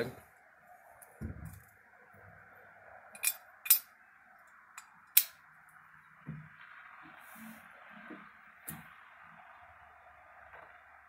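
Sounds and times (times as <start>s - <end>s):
metal engine parts clinking: 3.2s - 3.9s.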